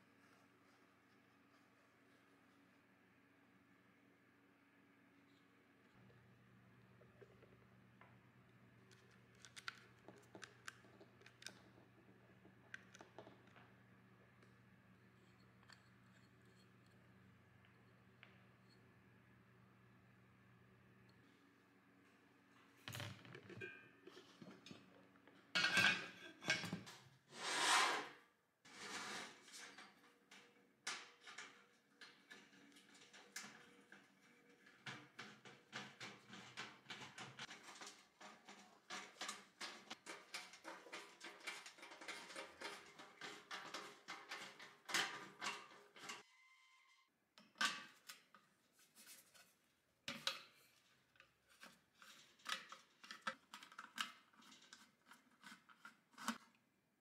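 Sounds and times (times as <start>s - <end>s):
metallic clicks and scrapes: 28.7s - 46.3s, 51.5s - 56.5s.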